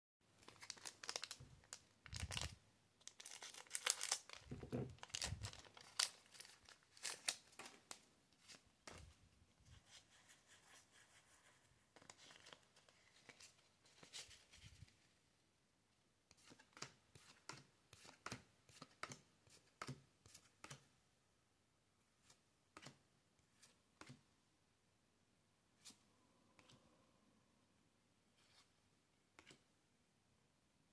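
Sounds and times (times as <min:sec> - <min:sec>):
foil wrapper crinkling and tearing: 0:00.4 - 0:07.9.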